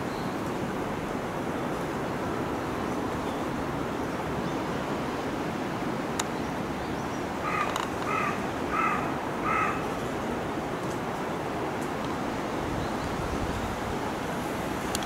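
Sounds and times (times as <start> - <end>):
low outdoor rush: 0.0 - 15.0
crow cawing: 7.4 - 10.0.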